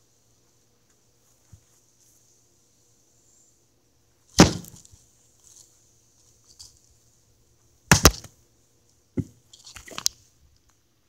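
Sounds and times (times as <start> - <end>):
log thudding on ground: 4.4 - 4.9, 7.9 - 8.3.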